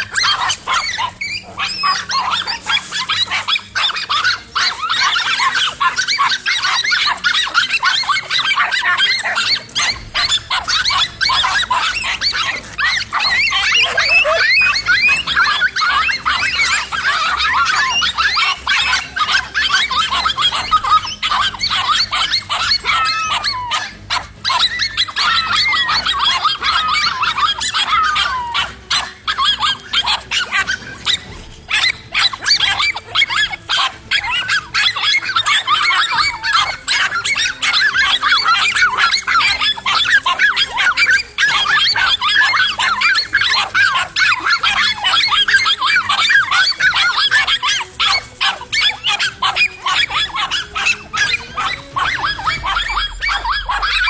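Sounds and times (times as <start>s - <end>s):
dogs barking: 0.0s - 54.0s
dogs whining: 0.0s - 54.0s.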